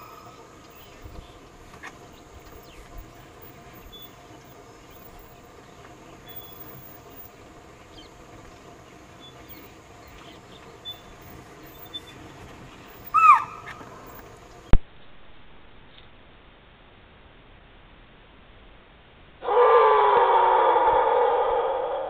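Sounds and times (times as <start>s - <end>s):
distant bird chirps: 0.0s - 14.8s
deer alarm call: 13.0s - 14.2s, 19.4s - 21.7s.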